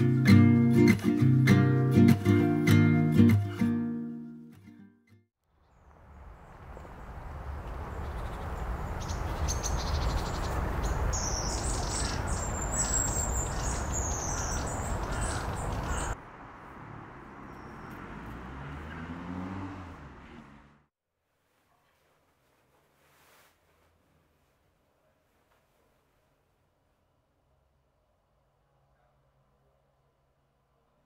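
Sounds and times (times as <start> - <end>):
small birds chirping: 5.5 - 16.2, 17.2 - 18.3.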